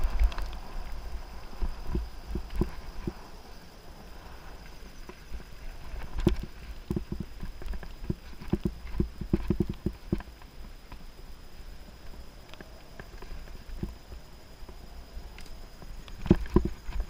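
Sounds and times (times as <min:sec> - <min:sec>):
low rumble of tyres: 0:00.0 - 0:17.0
wind: 0:00.0 - 0:17.0
bike knocks and rattles: 0:05.9 - 0:10.3, 0:16.2 - 0:17.0.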